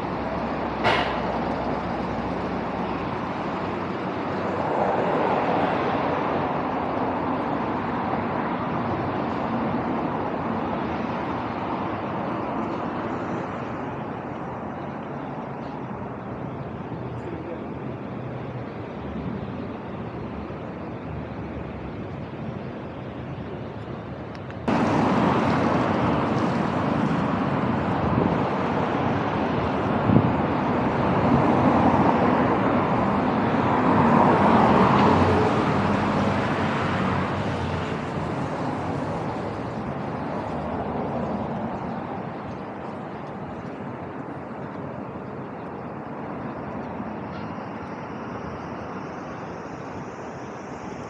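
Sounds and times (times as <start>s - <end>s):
road traffic hiss: 0.0s - 51.0s
vehicle passing close: 24.7s - 45.1s.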